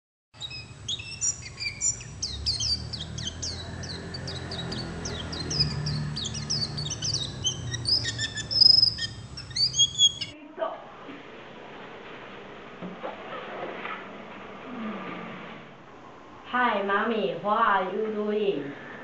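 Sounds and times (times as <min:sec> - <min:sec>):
small birds chirping: 0:00.4 - 0:10.4
faint low hum: 0:00.4 - 0:19.0.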